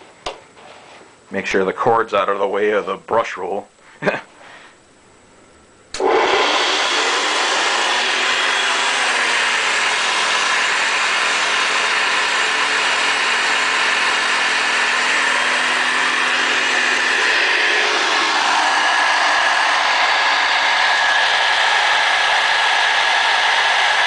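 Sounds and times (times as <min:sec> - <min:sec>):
vacuum cleaner motor running: 0:06.0 - 0:24.0.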